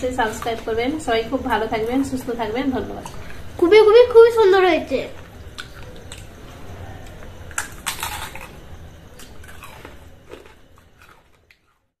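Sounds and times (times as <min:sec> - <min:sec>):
low steady hum: 0:00.0 - 0:11.9
fried snacks crunching: 0:07.0 - 0:11.9.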